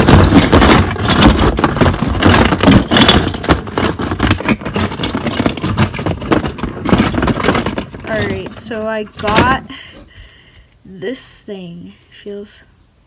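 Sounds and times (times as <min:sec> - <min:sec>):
plastic pieces clattering: 0:00.0 - 0:10.0
hands rummaging through plastic toys: 0:00.0 - 0:10.8.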